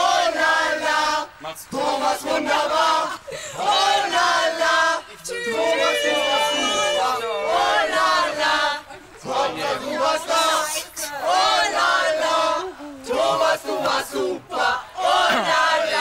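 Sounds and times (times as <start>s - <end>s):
crowd shouting and chanting: 0.0s - 16.0s.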